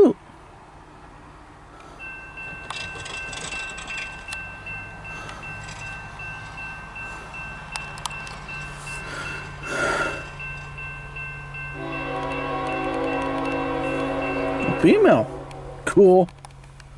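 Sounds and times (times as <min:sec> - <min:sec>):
diesel locomotive rumble: 0:00.0 - 0:16.9
railroad bell ringing: 0:01.9 - 0:16.1.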